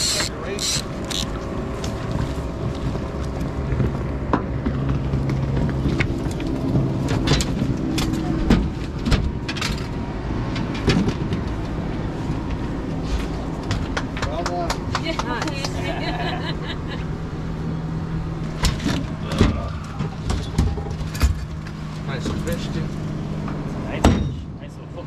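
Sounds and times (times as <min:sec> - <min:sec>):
boat motor running: 0:00.0 - 0:09.5
knocks and clatter on metal deck: 0:10.5 - 0:11.6.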